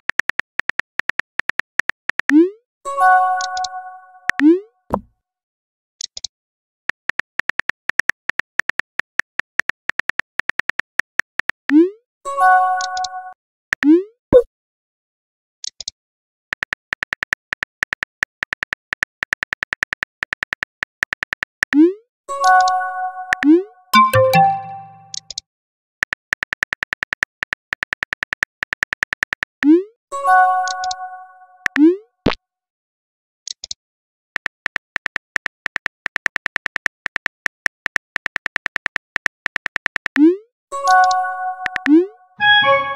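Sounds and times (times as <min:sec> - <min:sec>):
keyboard clicks: 0:03.4 - 0:05.1, 0:12.8 - 0:13.2, 0:22.5 - 0:25.4, 0:30.6 - 0:31.0, 0:34.4 - 0:42.0
phone keyboard clicks: 0:34.4 - 0:40.2.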